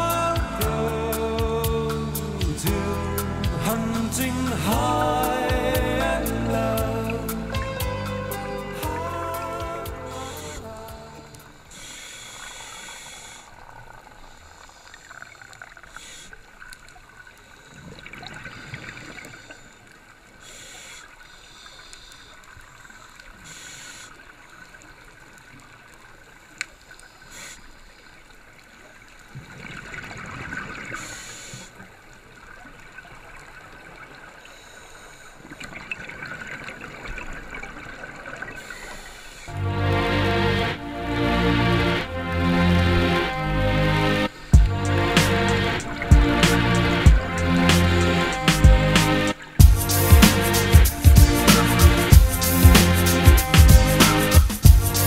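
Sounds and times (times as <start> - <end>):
regulator hiss on inhalation: 11.4 - 13.6, 15.9 - 16.5, 20.4 - 22.4, 23.4 - 24.3, 27.2 - 28.0, 31.0 - 31.8.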